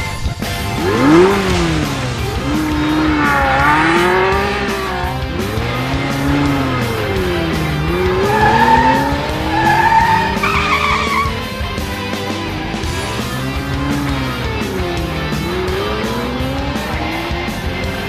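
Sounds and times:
background music: 0.0 - 18.0
racing car engine: 0.0 - 18.0
tyre squeals: 7.9 - 11.6.

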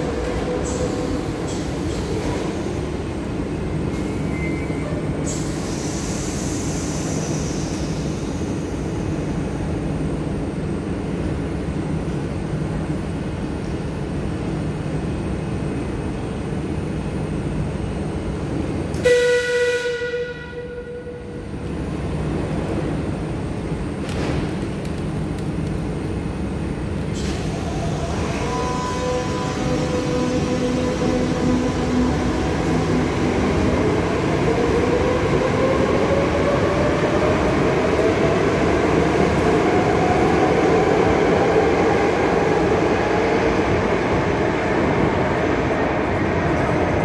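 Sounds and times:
hiss: 5.2 - 8.7
electric train stopping: 27.0 - 47.0.

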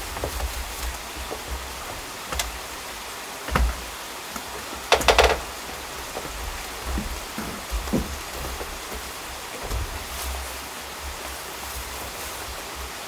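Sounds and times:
background hiss: 0.0 - 13.0
tools knocking on plastic bucket: 3.5 - 10.1.

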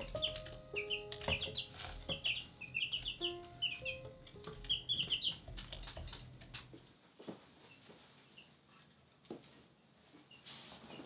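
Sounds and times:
chicks peeping: 0.0 - 6.8.

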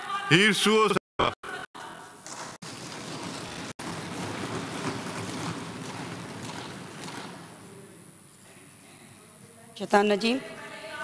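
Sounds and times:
crowd rustling din: 1.9 - 9.5.

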